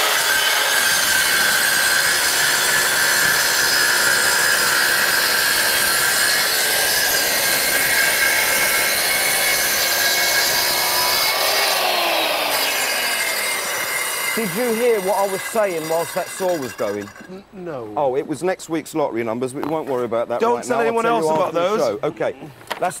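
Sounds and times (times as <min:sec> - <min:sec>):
circular saw cutting: 0:00.0 - 0:17.5.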